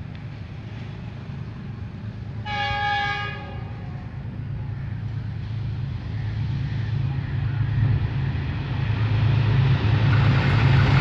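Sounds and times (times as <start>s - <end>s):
train rumble: 0.0s - 11.0s
locomotive horn blast: 2.4s - 4.1s.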